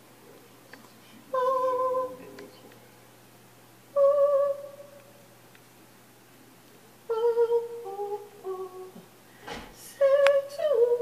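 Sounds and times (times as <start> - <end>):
person humming warm-up notes: 3.9 - 5.0, 7.1 - 9.0.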